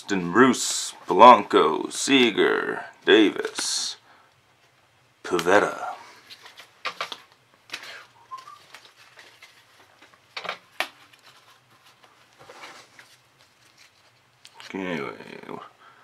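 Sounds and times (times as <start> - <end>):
light rustling of cards: 5.3 - 15.6
faint chirp: 8.2 - 8.7.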